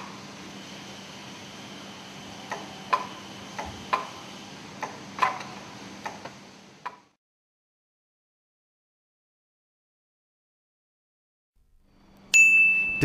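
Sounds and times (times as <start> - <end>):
low workshop hum: 11.6 - 13.0.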